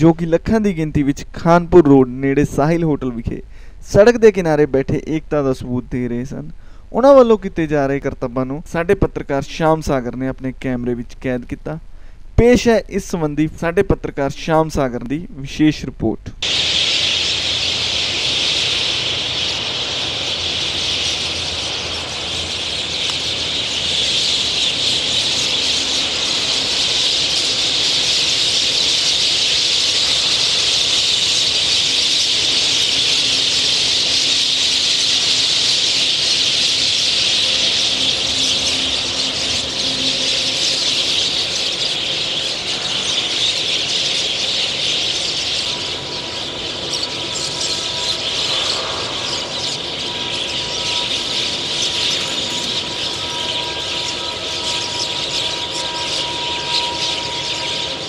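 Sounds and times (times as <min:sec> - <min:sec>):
flock of birds calling: 0:16.4 - 0:58.0.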